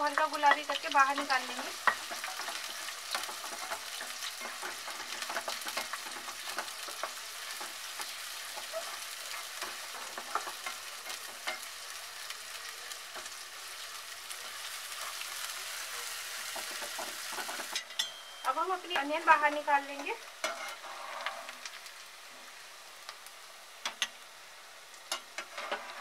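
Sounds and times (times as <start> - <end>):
onions sizzling in oil: 0.0 - 26.0
spatula scraping a pan: 0.5 - 11.8, 16.4 - 18.1, 20.4 - 21.6, 25.1 - 26.0.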